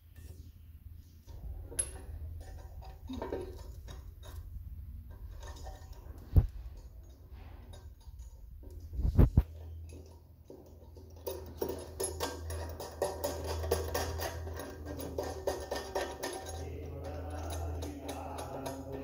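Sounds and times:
low steady rumble: 0.0s - 12.6s.

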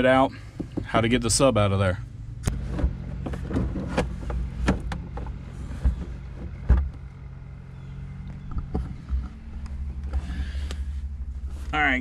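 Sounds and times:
plastic console knocks and clunks: 2.6s - 7.0s.

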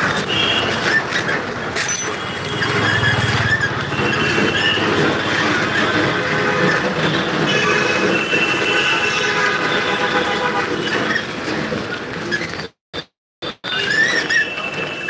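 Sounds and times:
street traffic noise: 0.0s - 15.0s
high squeals: 0.6s - 6.0s, 13.5s - 15.0s.

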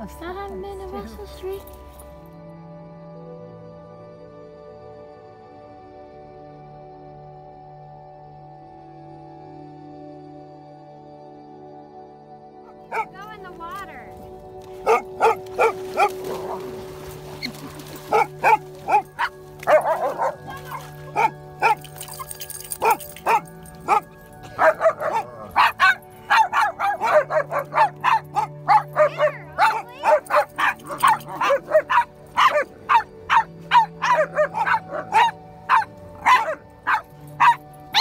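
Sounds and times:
dog barking: 12.7s - 13.2s, 14.8s - 16.7s, 18.1s - 22.2s, 22.8s - 38.0s.

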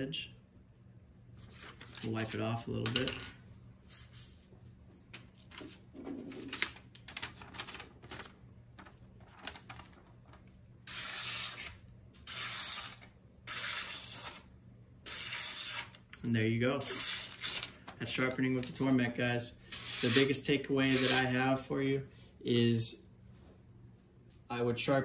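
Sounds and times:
cloth and paper rustling: 4.0s - 10.5s
knife slicing through paper: 10.9s - 14.5s, 15.1s - 16.0s, 19.7s - 21.3s.

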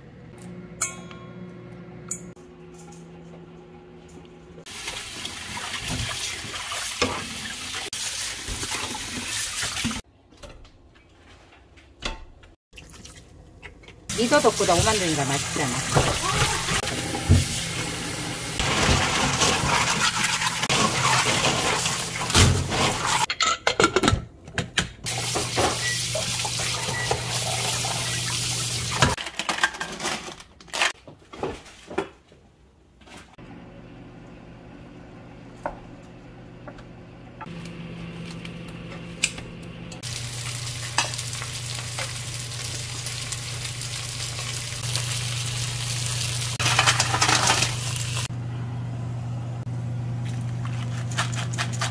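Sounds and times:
pot sizzling and bubbling: 4.7s - 10.0s, 14.1s - 23.3s, 25.1s - 29.2s, 40.0s - 48.3s
tap water running: 4.7s - 10.0s, 14.1s - 23.3s, 25.1s - 29.2s, 40.0s - 48.3s.

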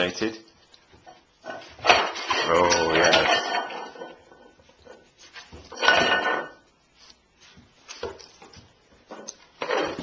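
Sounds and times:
metal pots clattering and scraping: 1.0s - 6.7s, 9.0s - 10.0s.

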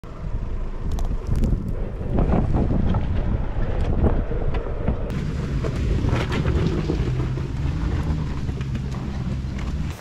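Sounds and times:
wind rumbling on microphone: 0.0s - 10.0s
car engine running: 5.1s - 10.0s.

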